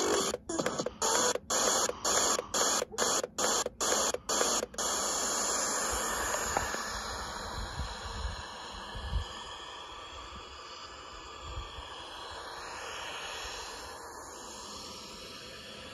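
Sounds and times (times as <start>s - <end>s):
radio static hiss: 0.0s - 7.6s.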